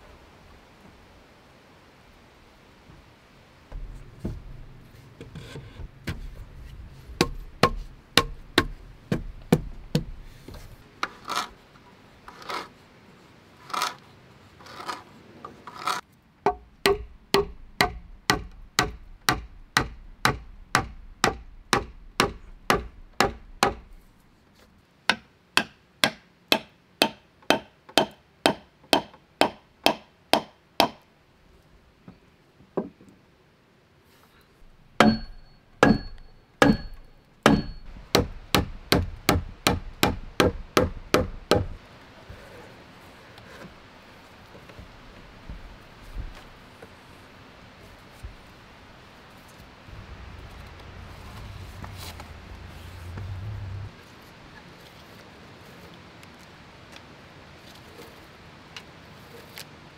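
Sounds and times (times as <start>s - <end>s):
scraping strokes on wood: 3.7s - 11.6s
hand tool knocking on wood: 7.2s - 10.2s, 16.5s - 23.9s, 35.0s - 41.7s.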